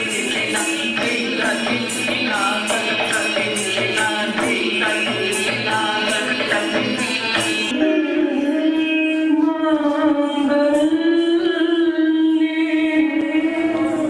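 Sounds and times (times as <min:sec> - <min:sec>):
percussion rhythm: 0:00.0 - 0:08.8
person singing held gliding line: 0:00.0 - 0:14.0.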